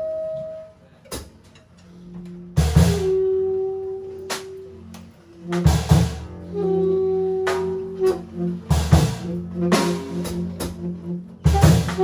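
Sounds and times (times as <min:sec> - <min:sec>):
saxophones holding long notes: 0:00.0 - 0:01.0, 0:01.8 - 0:12.0
drum and cymbal strikes: 0:02.6 - 0:03.2, 0:05.5 - 0:06.3, 0:07.4 - 0:12.0.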